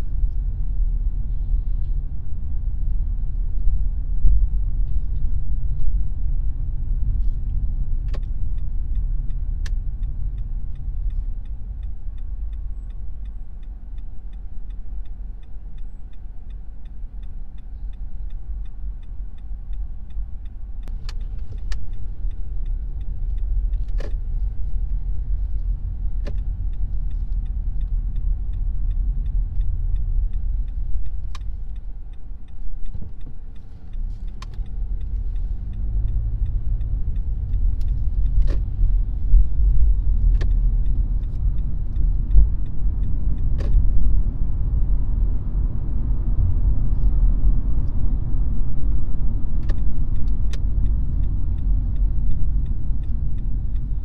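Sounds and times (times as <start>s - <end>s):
car engine and road noise: 0.0s - 54.0s
sharp clicks: 7.4s - 44.0s.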